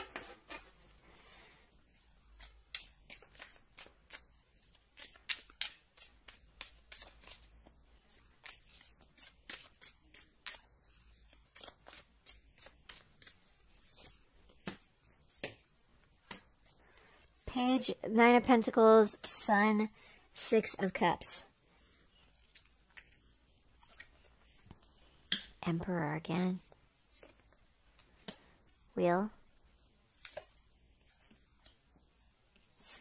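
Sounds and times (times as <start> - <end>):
cards being shuffled: 2.4 - 7.5, 8.2 - 15.5.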